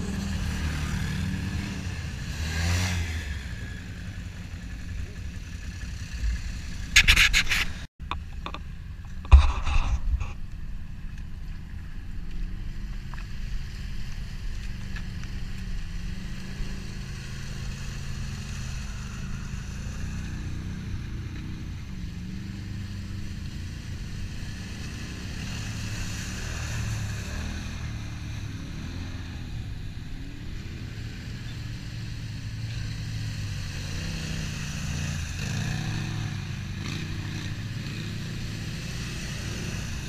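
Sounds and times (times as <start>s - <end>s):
off-road vehicle engines running: 0.0s - 40.0s
mud and water churned by tyres: 10.4s - 29.4s, 32.2s - 40.0s.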